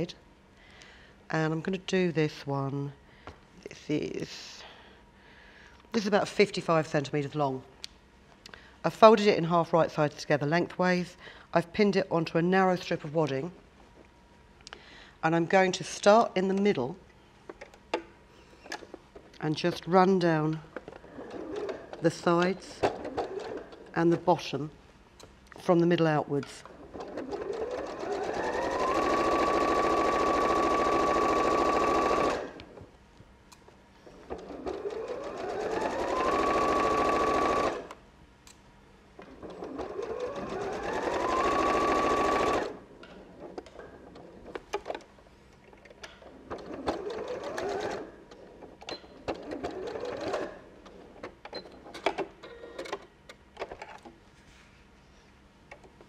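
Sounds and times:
sewing machine stitching: 21.0 - 24.0, 26.7 - 32.8, 34.3 - 38.0, 39.2 - 44.9, 46.2 - 53.0.

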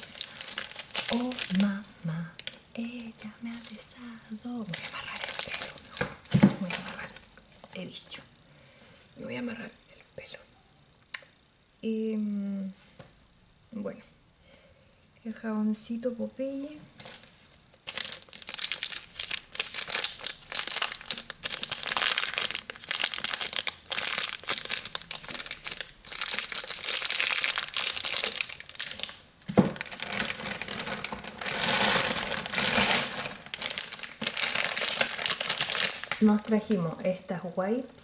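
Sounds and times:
fingers crinkling a wrapper: 0.0 - 7.2, 17.1 - 36.5.

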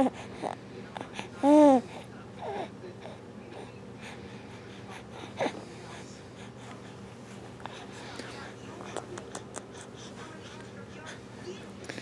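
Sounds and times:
baby cooing: 1.4 - 1.8.

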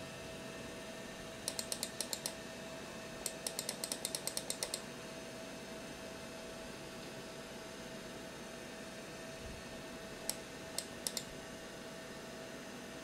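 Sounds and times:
steady hum: 0.0 - 13.0
mouse button clicking rapidly: 1.5 - 2.4, 3.3 - 4.8, 10.8 - 11.3.

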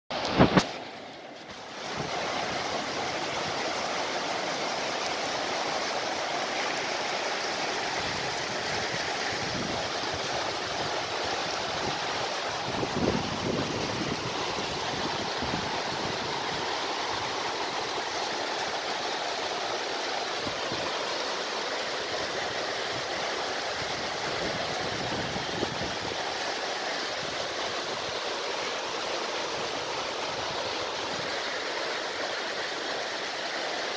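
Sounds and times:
heavy rain falling: 0.1 - 33.9.

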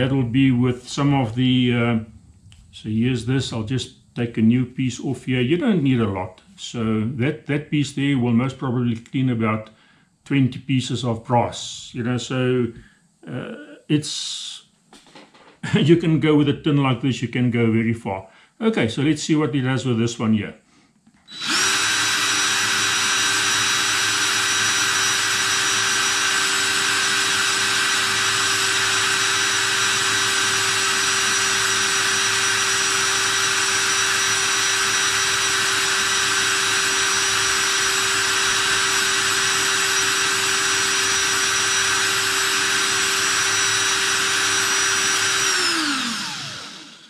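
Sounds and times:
cordless drill motor whine: 21.2 - 47.0.

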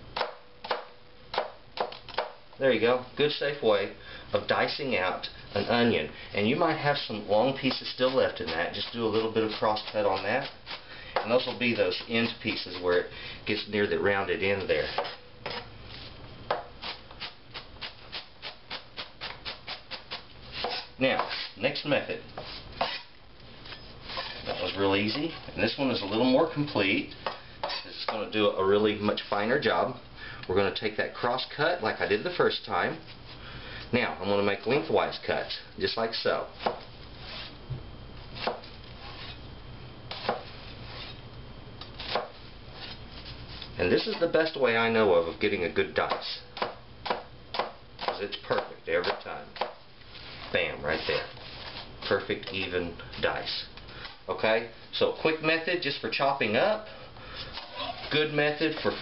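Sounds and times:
knife chopping on plastic board: 0.2 - 2.4, 42.0 - 42.3, 46.0 - 49.8
knife slicing onion on board: 14.6 - 15.7, 16.5 - 21.6, 22.4 - 23.1, 38.4 - 39.4, 40.1 - 41.2, 42.0 - 43.0, 46.0 - 49.8.

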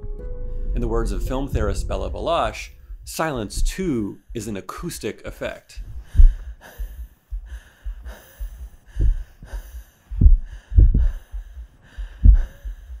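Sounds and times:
muffled heartbeat thumps: 0.2 - 4.9, 5.8 - 13.0.

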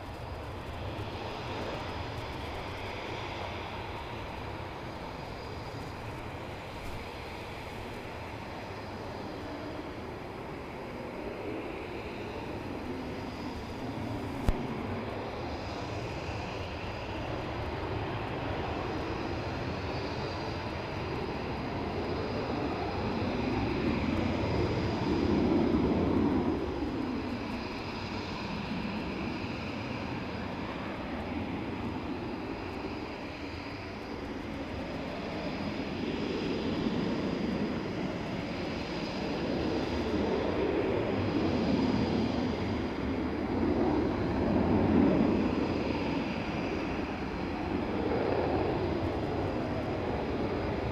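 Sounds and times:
fighter jets taking off: 0.0 - 50.9.

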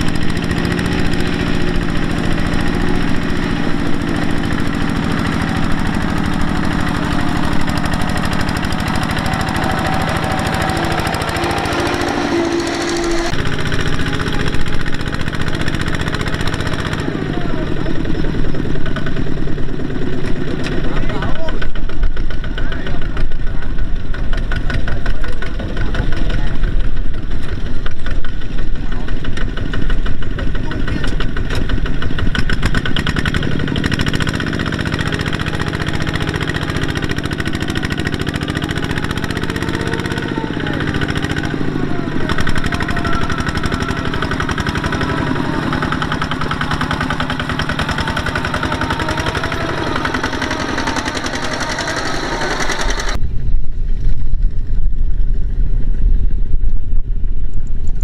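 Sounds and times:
voices: 0.0 - 21.8, 28.0 - 32.3, 33.0 - 53.2
tractor diesel engine chugging: 0.0 - 53.2
dull engine rumble: 0.0 - 58.0.

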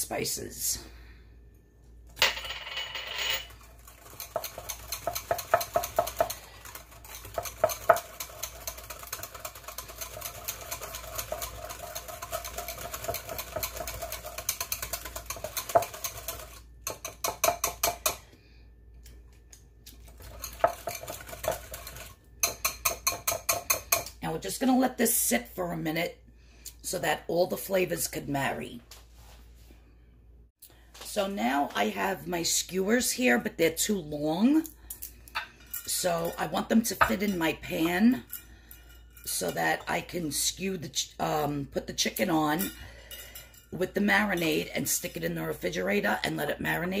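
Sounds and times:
whisk clicking against glass bowl: 3.9 - 18.2, 20.2 - 24.1.

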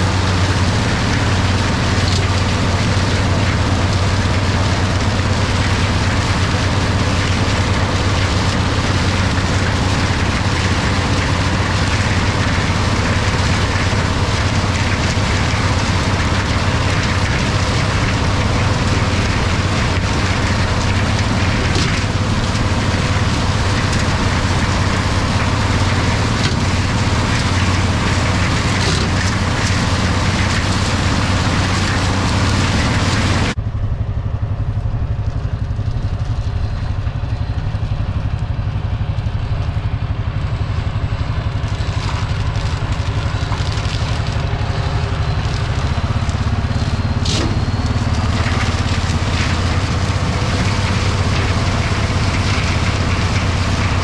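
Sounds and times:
chopper chattering rushing noise: 0.0 - 54.0
tractor diesel engine drone: 0.0 - 54.0.

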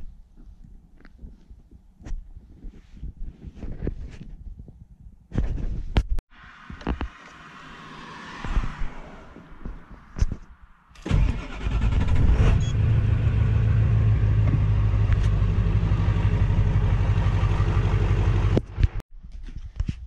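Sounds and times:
engine running: 11.0 - 19.0.

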